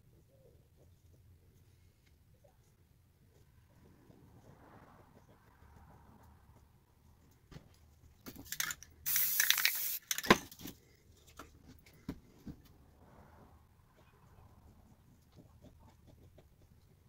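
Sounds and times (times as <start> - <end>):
spray-paint can hissing: 8.6 - 10.3.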